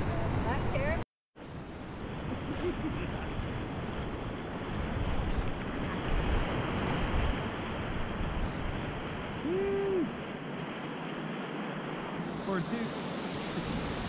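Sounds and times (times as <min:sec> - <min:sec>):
wind buffeting microphone: 0:01.9 - 0:10.5
person calling: 0:09.4 - 0:10.2.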